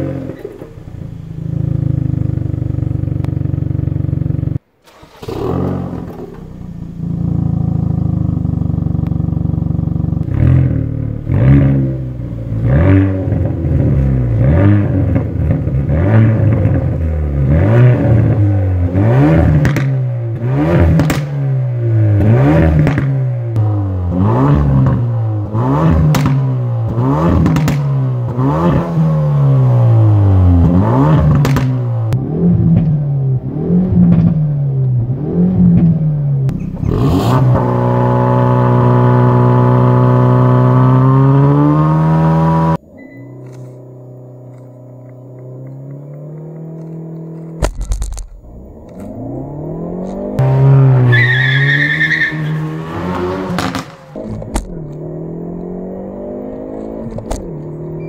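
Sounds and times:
car engine idling: 0.0s - 28.4s, 42.8s - 58.0s
exhaust crackles: 0.0s - 42.8s, 43.4s - 58.0s
car engine revving: 0.0s - 58.0s.

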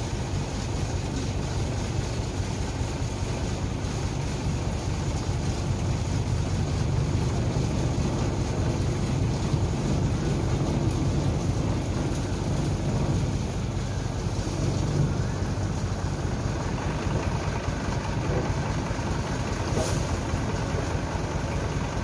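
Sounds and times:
diesel truck engine running: 0.0s - 22.0s.

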